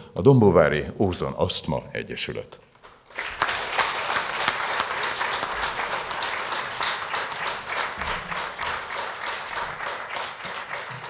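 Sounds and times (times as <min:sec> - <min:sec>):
audience applause: 0:03.0 - 0:11.0.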